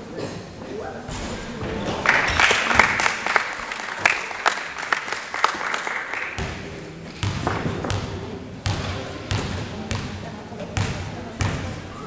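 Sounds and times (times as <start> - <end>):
spectators clapping: 1.9 - 6.8
basketball bouncing: 6.4 - 10.2, 10.8 - 11.8.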